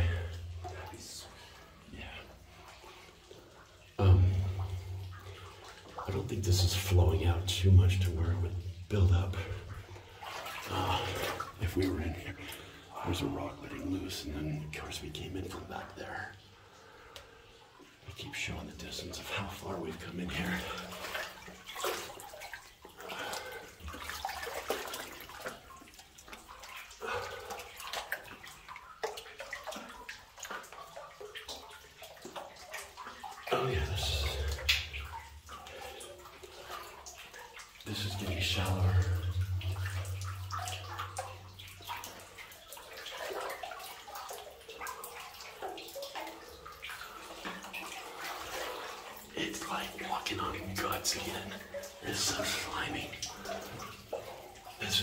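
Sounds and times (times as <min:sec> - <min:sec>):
low steady hum: 0:00.0 - 0:27.8, 0:33.0 - 0:44.4
water drips: 0:00.0 - 0:55.0
water sloshing and splashing: 0:00.0 - 0:55.0.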